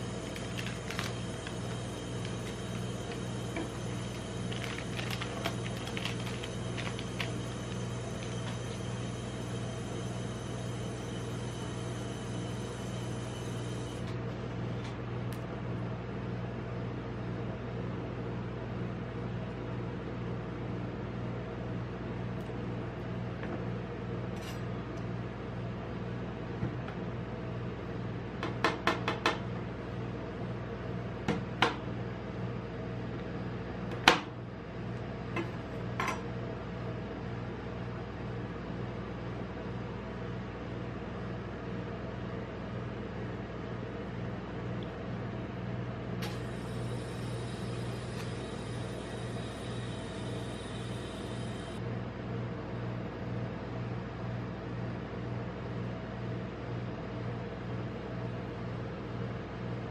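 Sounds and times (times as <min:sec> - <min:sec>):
refrigeration unit humming: 0:00.0 - 0:59.9.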